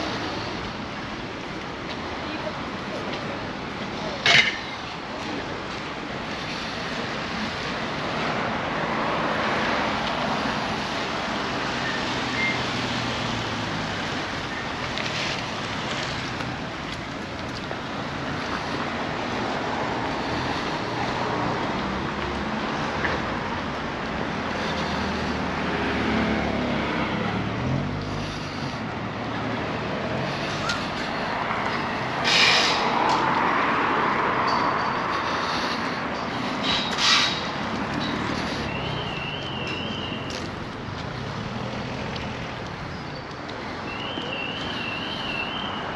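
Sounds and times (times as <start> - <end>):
cars driving past: 0.0 - 45.9
vehicle passing loudly: 18.0 - 42.8.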